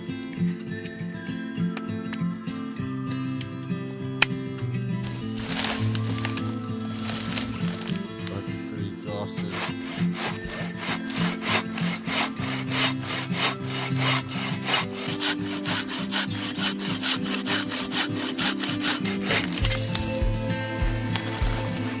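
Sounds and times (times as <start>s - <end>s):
folding saw cutting log: 5.0s - 22.0s.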